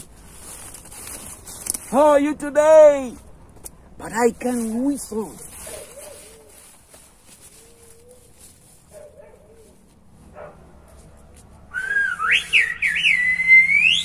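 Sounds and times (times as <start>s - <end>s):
man whistling in glides: 11.7s - 14.0s.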